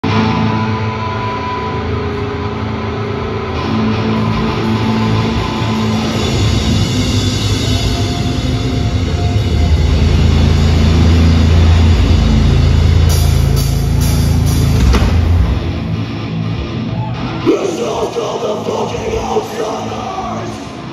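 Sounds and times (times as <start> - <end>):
heavy low bass: 0.0 - 20.9
metal band playing live: 0.0 - 20.9
full-band hits: 3.6 - 18.1.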